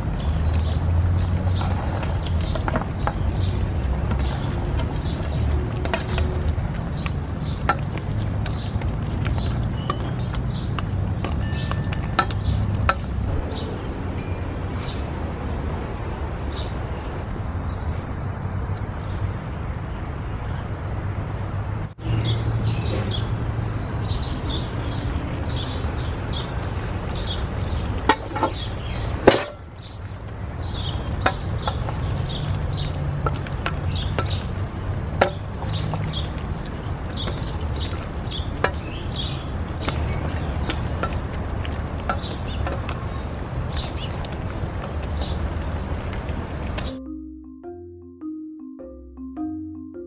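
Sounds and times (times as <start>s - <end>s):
birds chirping: 0.0s - 15.2s, 22.0s - 50.0s
wooden spoon knocking metal pot: 4.1s - 13.2s, 33.2s - 34.5s, 35.2s - 35.9s.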